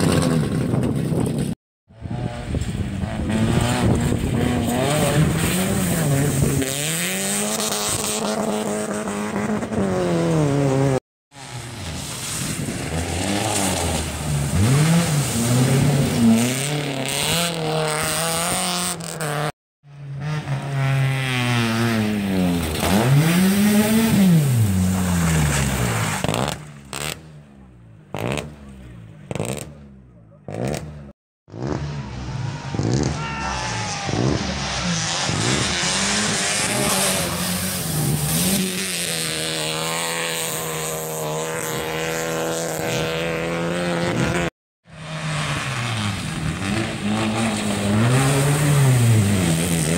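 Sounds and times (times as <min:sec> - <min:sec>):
rally car engines revving: 0:00.0 - 0:49.9
cars splashing through water: 0:03.8 - 0:08.5, 0:11.4 - 0:19.1, 0:20.6 - 0:27.2, 0:31.8 - 0:43.2, 0:45.0 - 0:49.9.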